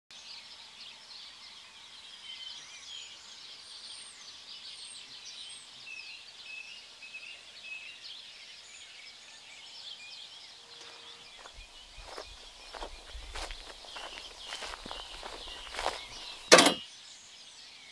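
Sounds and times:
background hiss: 0:00.2 - 0:16.7
small birds chirping: 0:00.2 - 0:17.9
footsteps on a road: 0:10.8 - 0:16.8.

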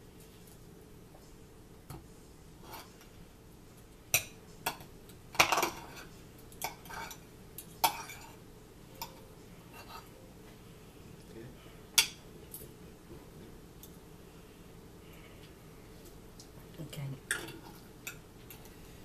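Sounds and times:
cutlery clinking on plates: 0:04.2 - 0:08.4.

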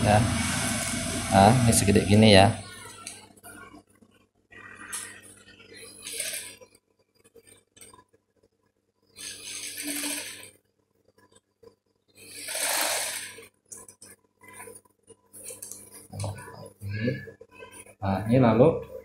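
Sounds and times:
motor hum: 0:00.0 - 0:03.8
sewing machine stitching: 0:06.0 - 0:06.6, 0:09.2 - 0:10.5, 0:12.3 - 0:13.5.

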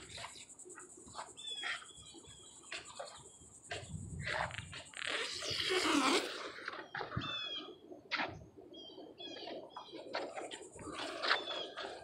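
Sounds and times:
small bird chirping: 0:00.0 - 0:07.9.

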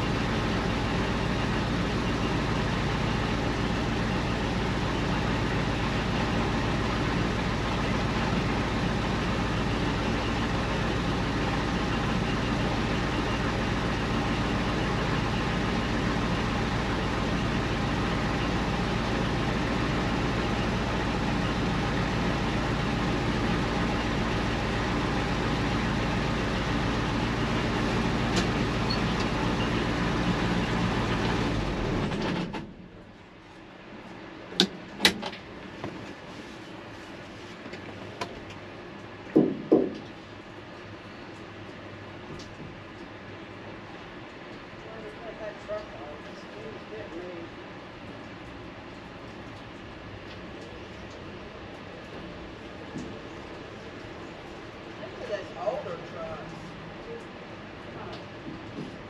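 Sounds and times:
diesel truck engine running: 0:00.0 - 0:37.2.

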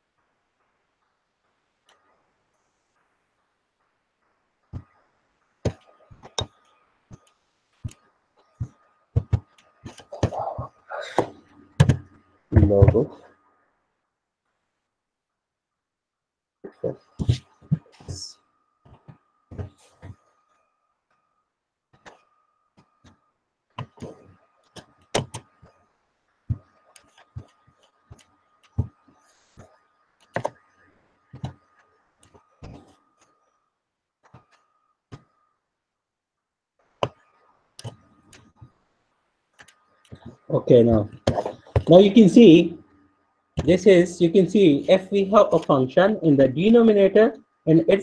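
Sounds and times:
faint high whine: 0:00.0 - 0:48.0
sharp clicks and taps: 0:37.8 - 0:38.8.

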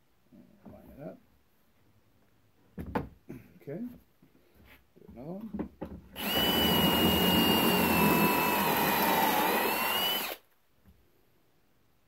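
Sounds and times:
cordless drill whining: 0:06.2 - 0:10.4.

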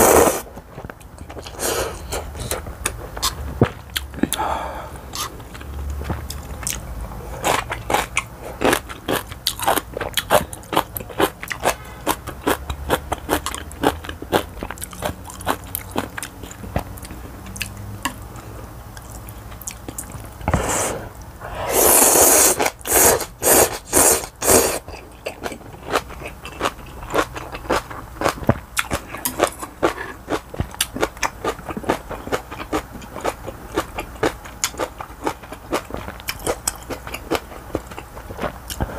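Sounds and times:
noodles slurped loudly: 0:21.6 - 0:24.8
chewing and lip smacking: 0:24.8 - 0:38.9.

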